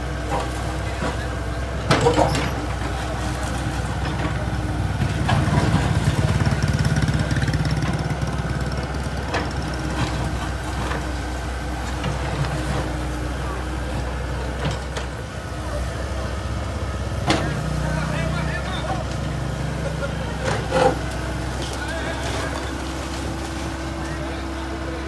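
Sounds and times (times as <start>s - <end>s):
excavator diesel engine running: 0.0s - 25.0s
falling masonry crashing: 17.3s - 25.0s.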